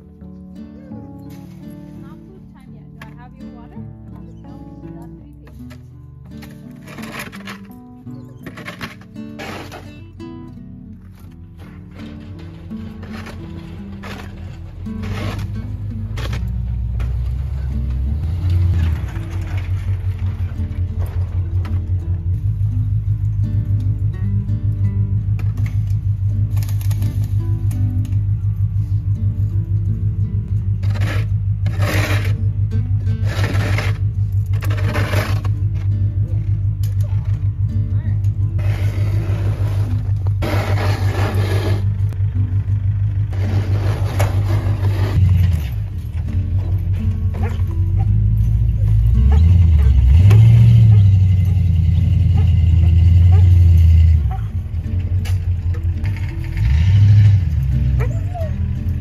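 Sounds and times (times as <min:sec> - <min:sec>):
background music: 0:00.0 - 0:59.0
vehicle engine rumble: 0:00.0 - 0:59.0
steady low drone: 0:05.6 - 0:59.0
snow shovel scraping snow: 0:06.4 - 0:07.8, 0:08.4 - 0:10.0, 0:11.6 - 0:16.6, 0:30.8 - 0:32.5, 0:33.1 - 0:35.9, 0:38.6 - 0:42.2, 0:43.3 - 0:45.8.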